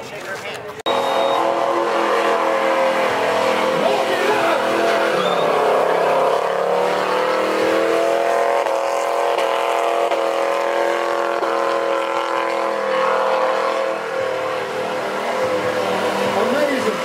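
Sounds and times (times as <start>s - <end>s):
engine at high revs: 0.9s - 17.0s.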